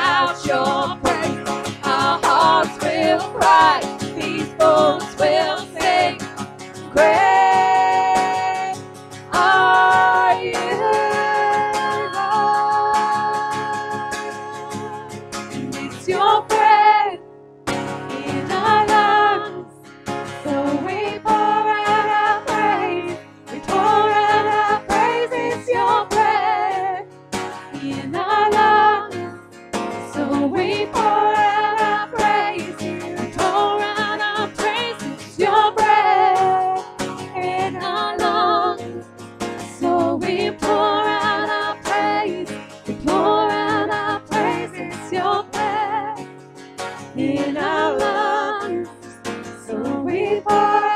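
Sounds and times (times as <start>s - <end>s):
two women singing: 0.0s - 17.3s, 17.9s - 50.9s
strummed acoustic guitar: 0.0s - 50.9s.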